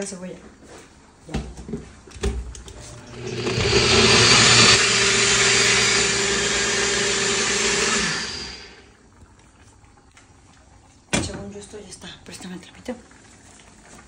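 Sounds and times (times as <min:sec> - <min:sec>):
blender motor whirring: 0:02.8 - 0:08.9.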